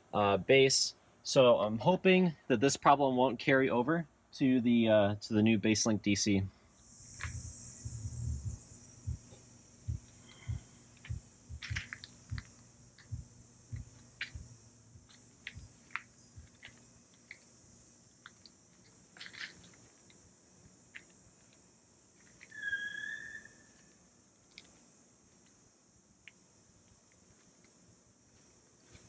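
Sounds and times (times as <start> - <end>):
high-pitched hiss: 0.0 - 29.0
low thumps: 7.1 - 16.6.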